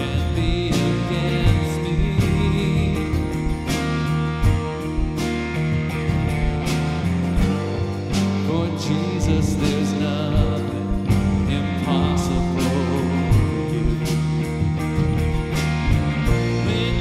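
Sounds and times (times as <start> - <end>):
man singing: 0.0 - 4.0, 8.3 - 14.9, 16.4 - 17.0
keyboard: 0.0 - 17.0
steady beat: 0.0 - 17.0
strummed electric guitar: 0.0 - 17.0.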